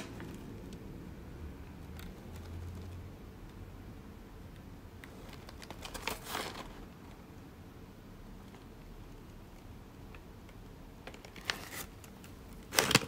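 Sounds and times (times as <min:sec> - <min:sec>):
paper wrapping crinkling: 0:05.1 - 0:07.0, 0:11.1 - 0:13.0.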